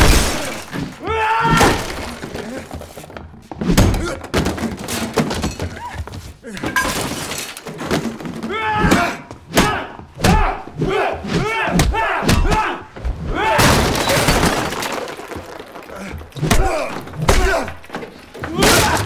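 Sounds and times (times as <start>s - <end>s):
objects breaking and scattering: 0.0s - 9.1s, 13.3s - 19.0s
men grunting and yelling: 8.4s - 14.2s, 15.9s - 17.8s.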